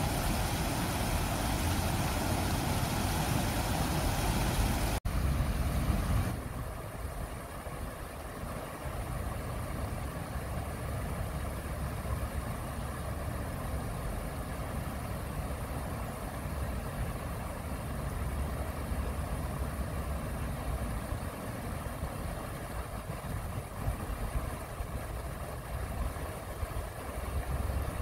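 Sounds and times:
water rushing over rocks: 0:00.0 - 0:09.9.

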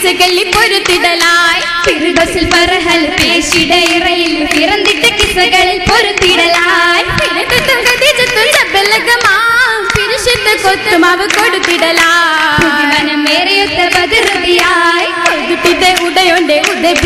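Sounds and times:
hand claps: 0:00.0 - 0:17.0
women singing in unison: 0:00.0 - 0:17.0.

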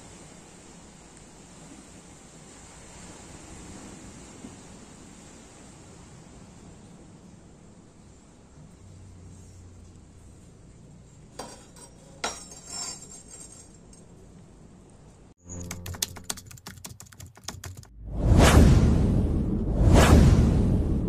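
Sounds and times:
sharp typing-like clicks: 0:15.6 - 0:17.9
low hum: 0:17.9 - 0:21.0.

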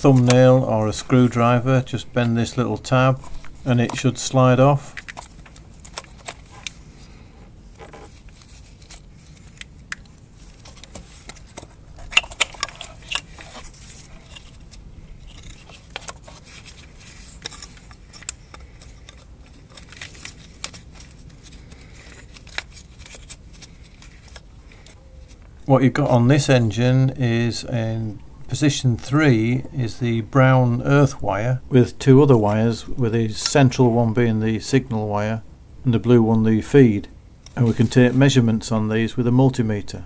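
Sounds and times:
gloved hands working plug: 0:07.8 - 0:25.4.

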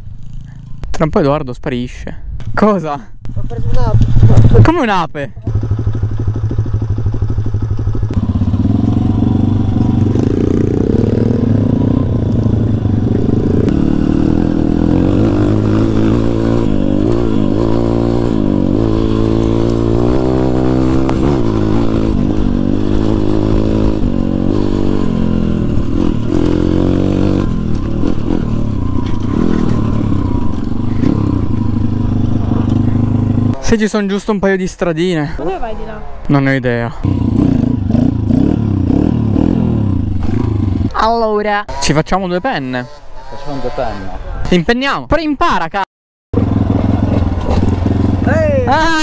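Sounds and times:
pit bike engine revving: 0:05.4 - 0:34.0, 0:37.0 - 0:44.2, 0:46.4 - 0:49.0.

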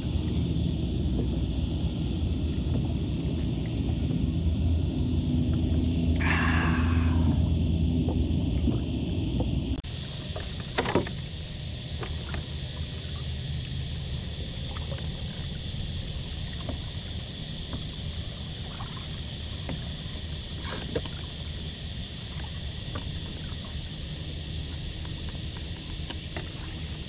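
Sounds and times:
knocks and clicks of trap line: 0:10.8 - 0:11.2.

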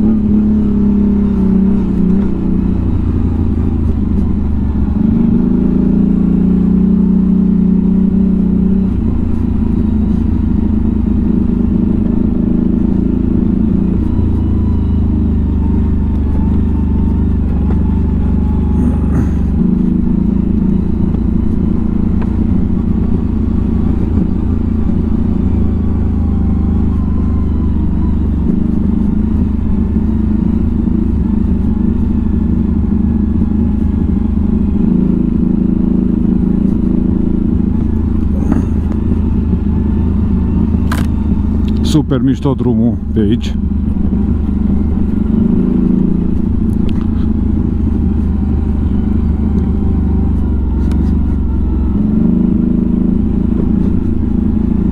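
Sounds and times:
atv engine running: 0:00.0 - 0:54.9
vehicle clattering over rough ground: 0:40.8 - 0:52.4.

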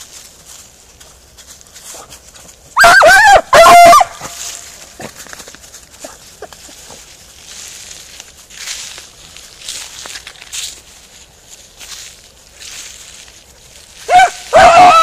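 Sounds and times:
leaves rustling underfoot: 0:00.0 - 0:15.0
hound yelping bays: 0:02.7 - 0:04.5, 0:14.0 - 0:15.0.

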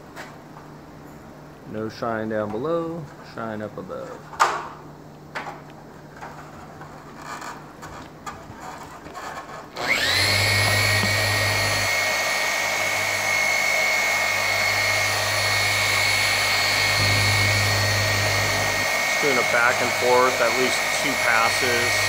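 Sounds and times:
orbital polisher motor whine: 0:09.8 - 0:22.0.

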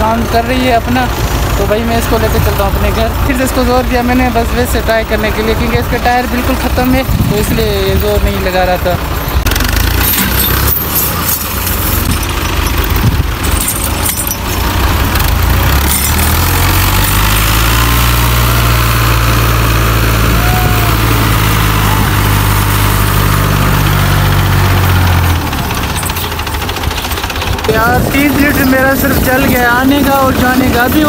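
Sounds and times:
diesel tractor engines under load: 0:00.0 - 0:31.0.

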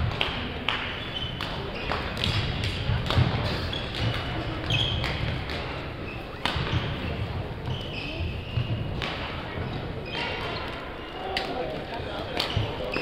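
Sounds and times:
racket hitting shuttlecock: 0:00.0 - 0:07.1, 0:08.5 - 0:09.4
shoes squeaking on wooden floor: 0:03.4 - 0:11.2, 0:12.5 - 0:13.0.

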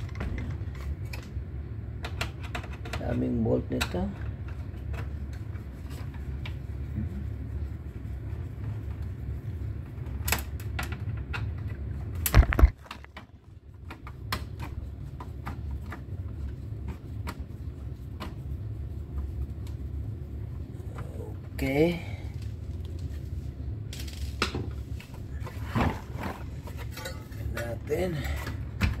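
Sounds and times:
low hum: 0:04.1 - 0:13.8.

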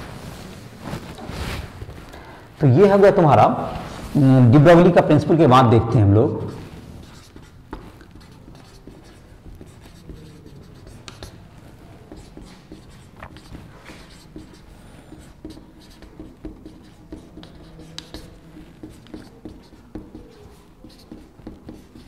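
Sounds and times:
marker pen scratching on whiteboard: 0:06.2 - 0:22.0.

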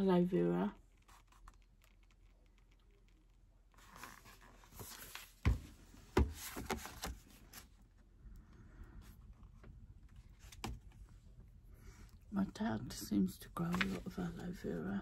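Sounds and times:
book pages rustling: 0:00.9 - 0:08.0, 0:13.6 - 0:15.0
book thumps: 0:04.7 - 0:07.3.

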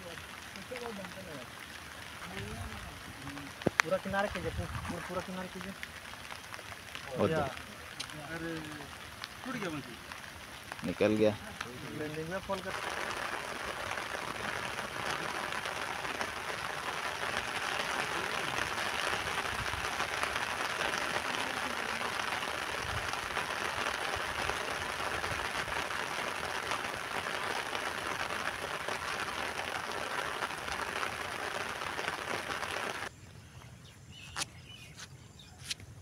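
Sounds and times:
heavy rain on river: 0:00.0 - 0:33.1.

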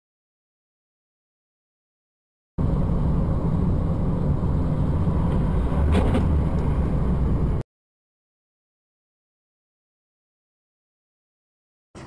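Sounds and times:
car road and engine rumble: 0:02.6 - 0:07.6.

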